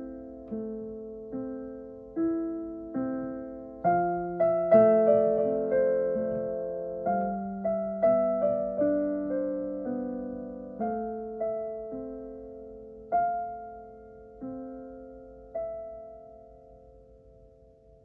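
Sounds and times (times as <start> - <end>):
slow solo piano melody: 0.0 - 18.0.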